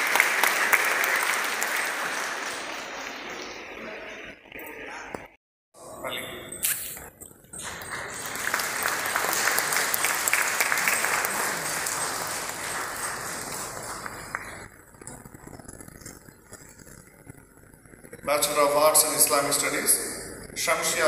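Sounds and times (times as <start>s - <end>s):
audience applauding: 0.0s - 4.4s, 7.6s - 15.4s.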